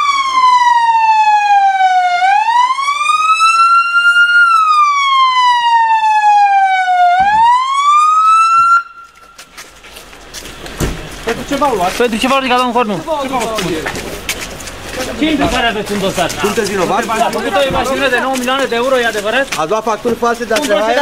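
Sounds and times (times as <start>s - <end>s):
police siren wailing: 0.0s - 9.4s.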